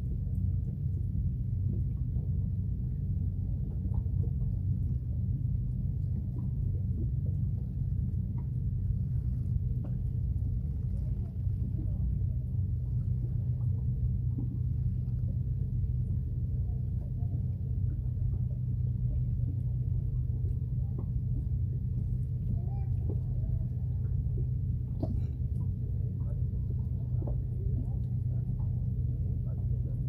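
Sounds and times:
boat engine idling: 0.0 - 30.0.

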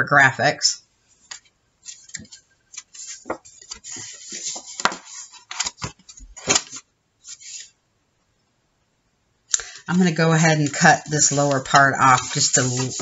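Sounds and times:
cardstock rustling and scraping: 1.4 - 7.8, 10.1 - 13.0.

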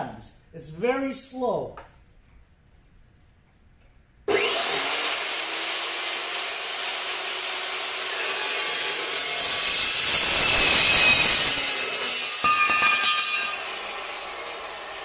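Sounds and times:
chop saw cutting steel: 4.3 - 15.0.

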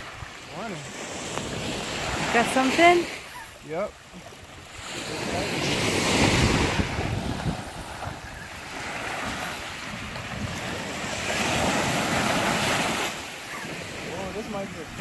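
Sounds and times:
surf washing against rocks: 0.0 - 15.0
wind buffeting microphone: 4.4 - 15.0.

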